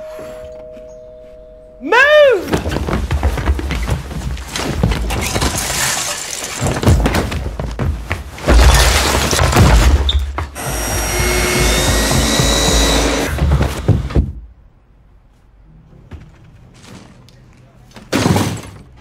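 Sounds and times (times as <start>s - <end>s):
household clatter with knocks: 2.5s - 14.4s, 18.0s - 19.0s.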